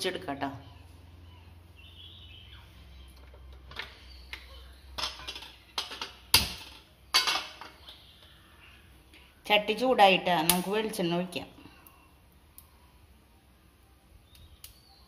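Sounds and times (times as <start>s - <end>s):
pan and utensils clattering: 5.0s - 7.8s.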